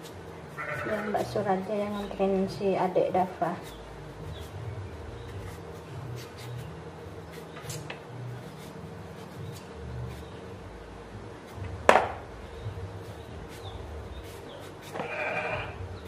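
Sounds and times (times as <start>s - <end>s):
knife scraping potatoes: 0.0s - 10.4s, 13.0s - 16.0s
low background rumble: 0.0s - 16.0s
sharp knock: 11.9s - 12.2s.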